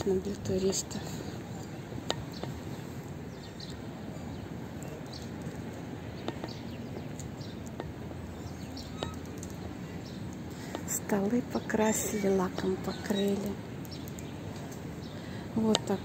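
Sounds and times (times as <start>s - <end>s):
low background noise: 0.0s - 16.0s
small birds chirping: 0.0s - 16.0s
faint clicks: 8.6s - 11.0s, 12.6s - 16.0s.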